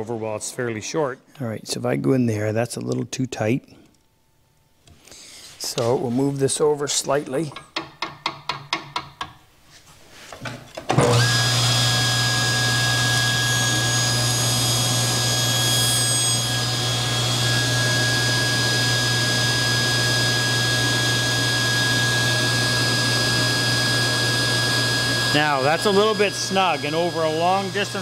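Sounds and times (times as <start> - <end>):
table saw running: 10.9 - 28.0.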